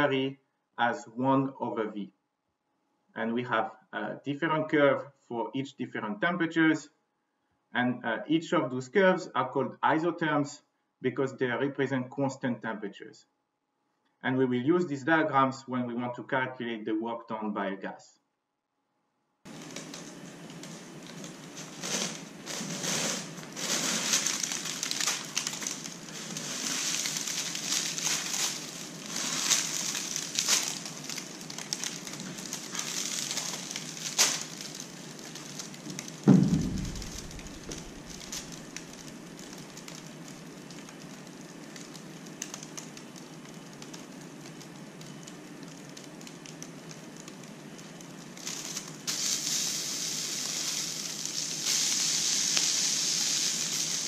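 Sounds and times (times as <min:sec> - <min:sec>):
steady hiss: 0:19.5 - 0:43.8, 0:47.8 - 0:54.0
liquid nitrogen sizzling and crackling: 0:19.5 - 0:54.0
sharp low thump: 0:36.3 - 0:38.2.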